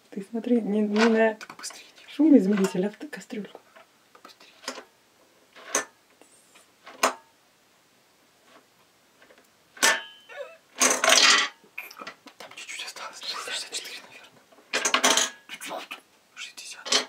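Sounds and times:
metal pot ringing: 9.9 - 10.5.

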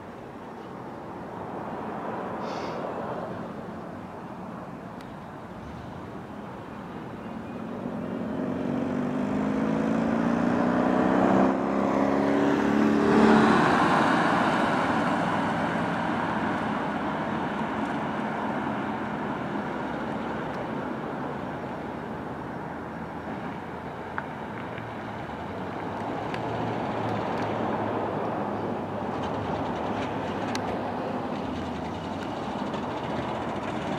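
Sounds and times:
road and tyre noise: 0.0 - 33.9
truck engine accelerating: 7.8 - 21.4, 25.1 - 33.9.

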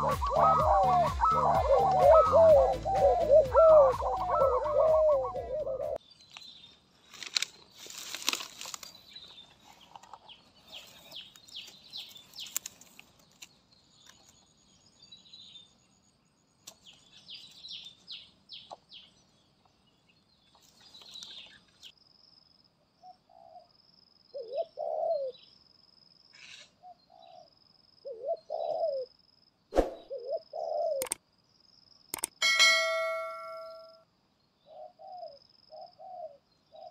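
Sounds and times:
dove cooing: 0.0 - 6.0, 24.4 - 25.4, 27.1 - 29.1, 30.1 - 31.1, 34.7 - 36.9
rustles or wing flaps: 29.7 - 30.1
high bird chirps: 32.4 - 34.0
steady thin high tone: 32.4 - 34.0.

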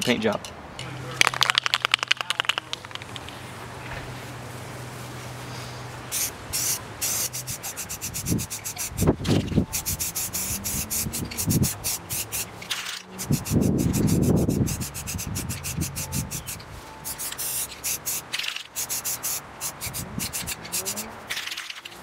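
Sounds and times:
spray paint can hissing: 6.1 - 22.0.

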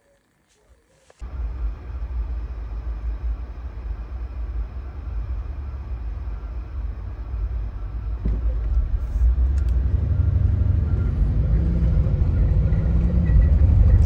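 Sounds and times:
car road and wind rumble: 8.0 - 14.0.

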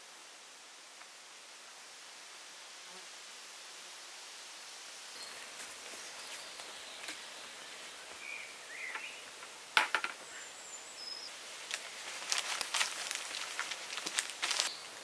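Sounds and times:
steady hiss: 0.0 - 15.0
bird chirps: 6.1 - 9.3, 10.2 - 11.3
sharp crunching clicks: 11.7 - 14.7.

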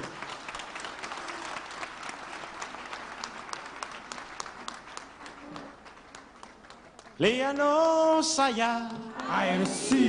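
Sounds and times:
congregation applauding: 0.0 - 10.0.

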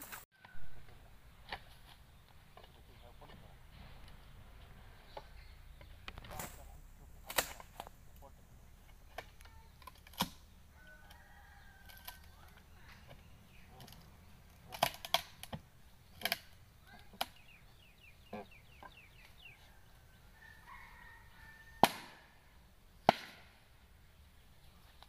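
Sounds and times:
faint bird calls: 16.8 - 21.6.

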